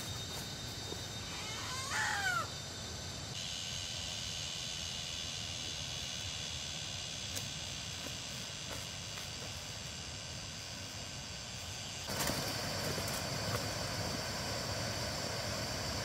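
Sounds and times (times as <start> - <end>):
high insect drone: 0.0 - 16.0
bird call with falling notes: 1.2 - 2.6.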